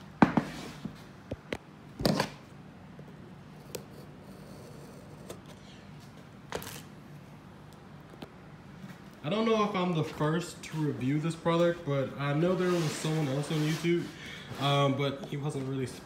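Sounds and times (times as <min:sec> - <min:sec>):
scraping rustles: 0:12.2 - 0:16.0.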